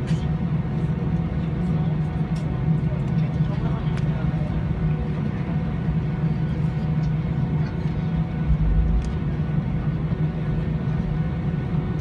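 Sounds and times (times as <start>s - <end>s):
airliner engine and cabin drone: 0.0s - 12.0s
low rumble: 8.3s - 10.0s.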